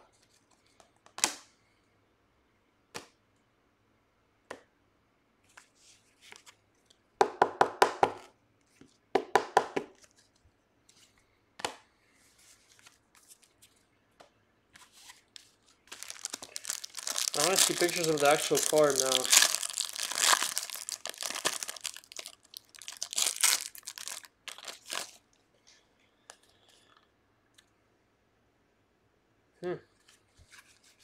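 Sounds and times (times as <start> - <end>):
faint rustling of cards: 5.4 - 7.1, 9.9 - 27.1, 29.9 - 31.0.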